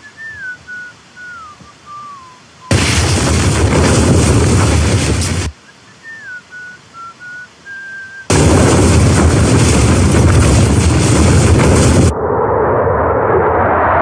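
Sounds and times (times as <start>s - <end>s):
faint wavering whistle: 0.0s - 2.7s, 5.6s - 8.3s
wind buffeting a tent: 2.7s - 5.6s, 8.3s - 12.4s.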